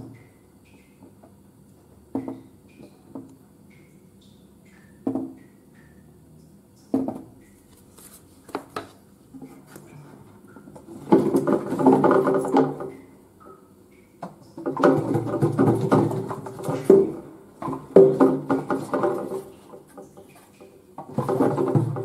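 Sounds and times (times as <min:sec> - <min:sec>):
plastic bottles knocking: 0:02.1 - 0:02.5, 0:05.0 - 0:05.4, 0:06.9 - 0:07.4, 0:10.6 - 0:13.0, 0:14.2 - 0:22.0
bottles clattering: 0:09.4 - 0:13.0, 0:14.6 - 0:22.0.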